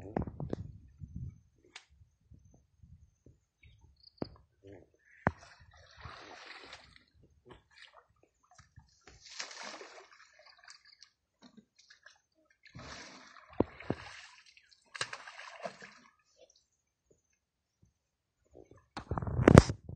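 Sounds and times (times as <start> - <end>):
water sloshing and splashing: 5.2 - 16.4.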